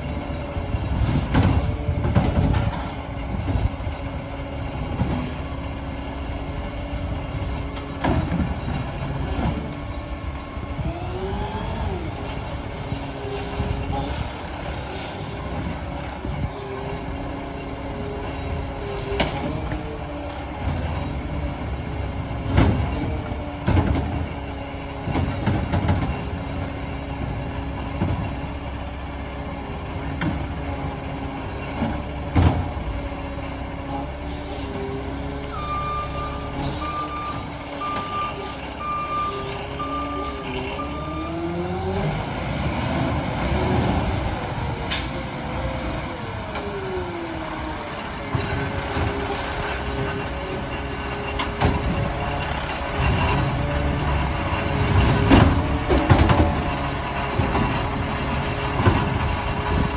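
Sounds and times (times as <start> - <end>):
garbage truck diesel engine: 0.0 - 59.9
reversing beeps: 35.5 - 41.4.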